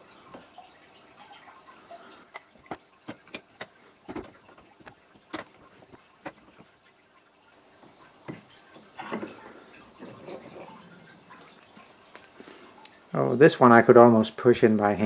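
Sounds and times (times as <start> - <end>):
sharp plastic clicks and knocks: 2.3 - 6.7.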